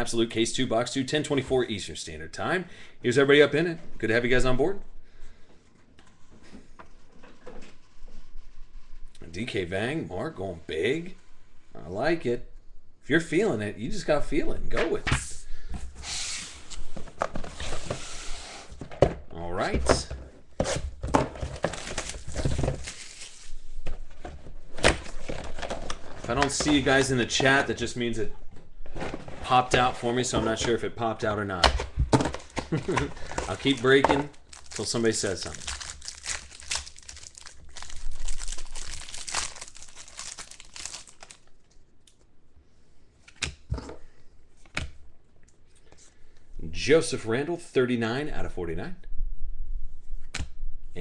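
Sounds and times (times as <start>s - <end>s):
cardboard rustling and scraping: 20.5s - 27.6s, 28.8s - 30.8s
plastic wrapping crinkling: 21.4s - 23.8s, 32.3s - 41.7s.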